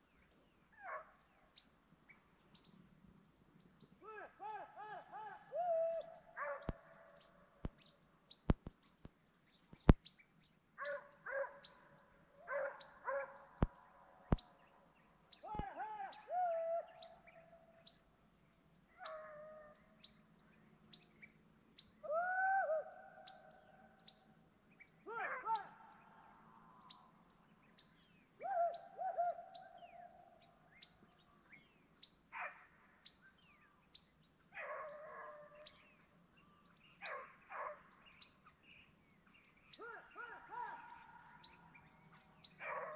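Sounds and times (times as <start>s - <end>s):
distant hounds baying: 37.0s - 37.9s, 39.8s - 41.8s, 42.5s - 42.9s.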